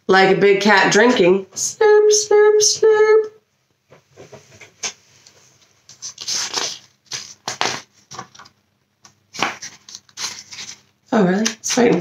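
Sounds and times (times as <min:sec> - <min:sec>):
book pages flipping: 0:04.2 - 0:12.0.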